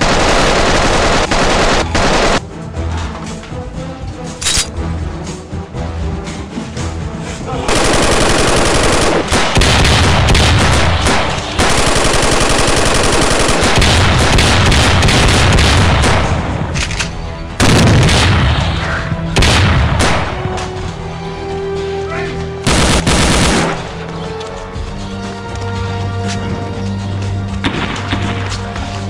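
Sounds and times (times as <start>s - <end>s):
automatic gunfire: 0.0s - 2.4s, 7.7s - 16.6s, 17.6s - 18.5s, 22.7s - 23.8s.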